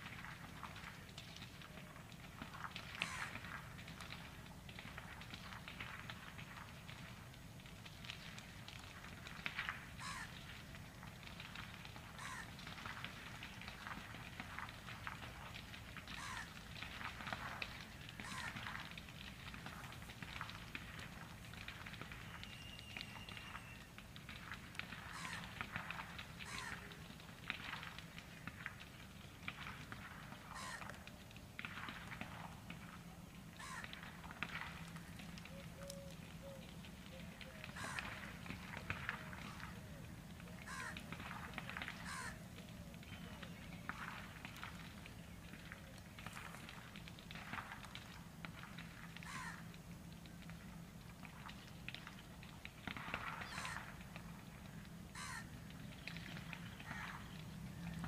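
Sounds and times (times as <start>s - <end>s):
bird chirps and whistles: 22.4s - 23.8s.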